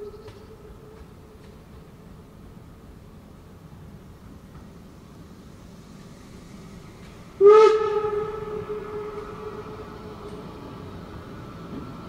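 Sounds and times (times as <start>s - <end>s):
steam locomotive whistle: 7.4s - 10.4s.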